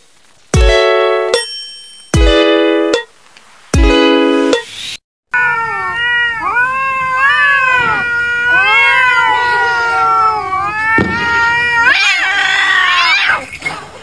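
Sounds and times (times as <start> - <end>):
cat yowling: 5.3 - 13.9.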